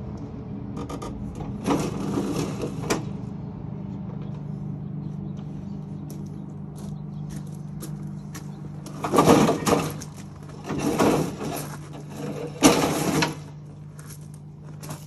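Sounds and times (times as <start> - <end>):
mower deck dragged over gravel: 1.5 - 3.2, 6.8 - 15.0.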